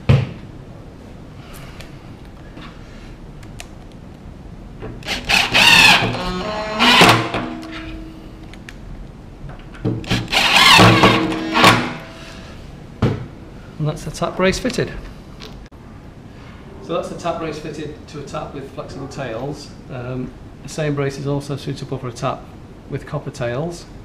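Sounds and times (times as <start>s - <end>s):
cordless driver motor whine: 5.0s - 7.3s, 10.1s - 12.0s.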